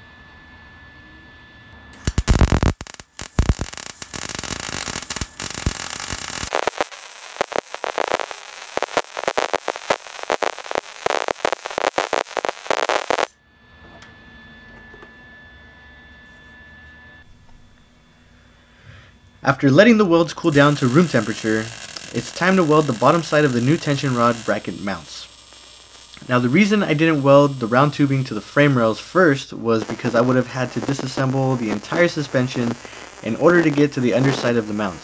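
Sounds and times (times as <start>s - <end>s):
welding arc crackling hiss: 2.0s - 13.3s, 20.4s - 35.0s.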